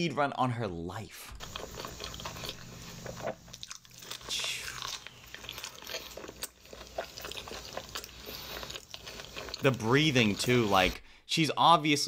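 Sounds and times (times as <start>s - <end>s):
person chewing food: 1.4s - 11.0s.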